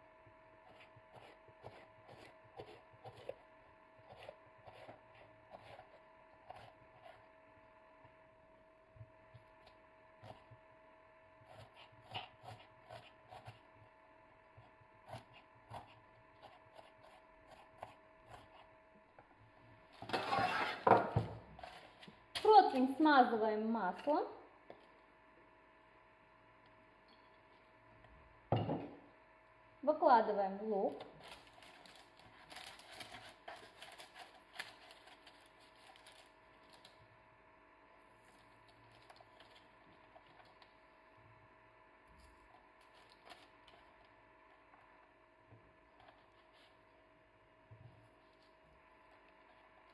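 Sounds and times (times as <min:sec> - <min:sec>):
parchment paper rustling: 0:31.2 - 0:37.0.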